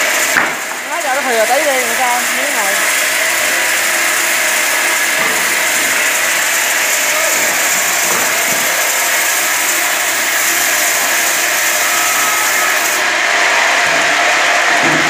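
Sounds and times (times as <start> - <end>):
rip saw cutting wood: 0.0 - 15.0.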